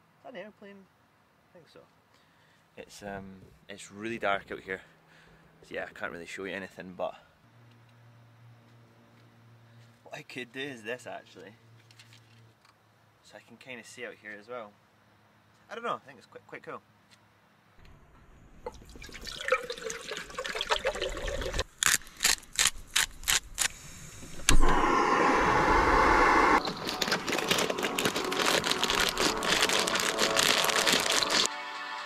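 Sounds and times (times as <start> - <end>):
water glugging: 18.7 - 21.6
water pouring into pot: 18.7 - 21.6
loud steady rushing noise: 24.5 - 30.3.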